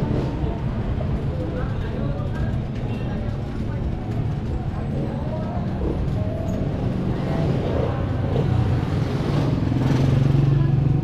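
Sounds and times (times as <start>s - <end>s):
street traffic: 0.0s - 11.0s
motorcycle engine running: 4.8s - 11.0s.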